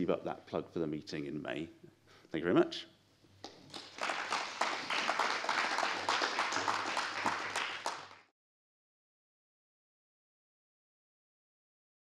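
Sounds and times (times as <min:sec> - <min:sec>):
audience applauding: 0:03.6 - 0:08.3.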